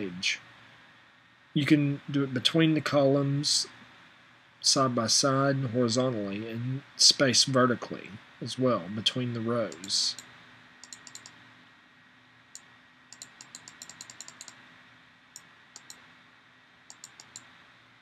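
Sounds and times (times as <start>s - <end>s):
faint steady hum: 0.0s - 18.0s
computer mouse clicks: 9.7s - 11.4s, 12.5s - 14.6s, 15.4s - 16.0s, 16.9s - 17.5s.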